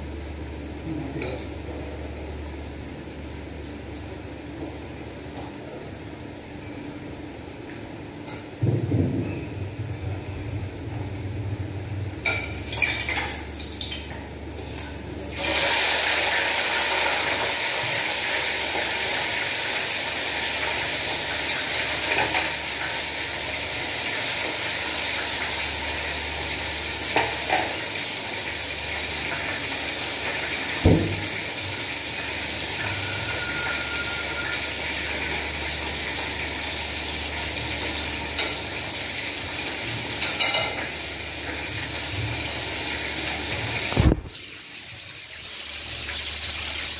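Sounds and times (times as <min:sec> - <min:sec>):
fish sizzling in oil: 0:15.3 - 0:46.9.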